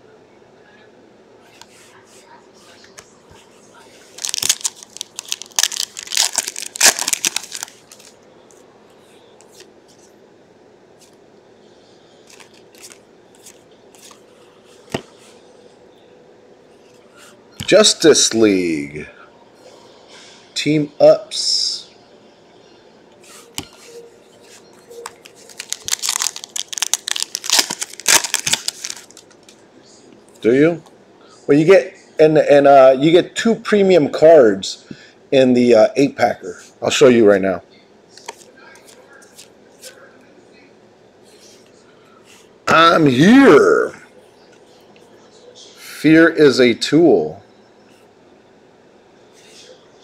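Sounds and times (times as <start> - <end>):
foil wrapper tearing and crinkling: 4.2 - 8.2, 25.5 - 29.5.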